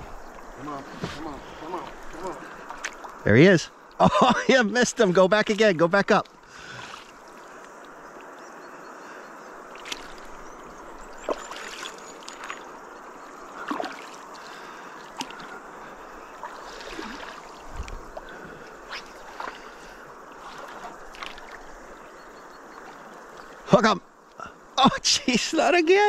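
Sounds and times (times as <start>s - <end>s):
water lapping around canoe hull: 0.0s - 26.0s
small splashes: 0.5s - 3.2s, 4.9s - 8.3s, 9.6s - 22.0s.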